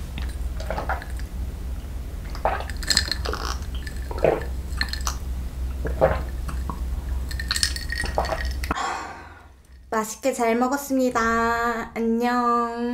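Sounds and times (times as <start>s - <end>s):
person gulping from a mug: 0.2s - 1.3s, 2.3s - 5.2s, 5.8s - 8.8s.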